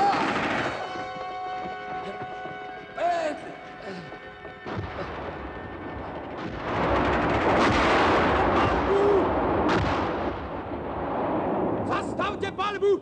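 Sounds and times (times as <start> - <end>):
sharp blasts: 0.0 - 1.0, 4.7 - 12.2
gunfire and exploding shells: 0.0 - 1.1, 4.7 - 12.6.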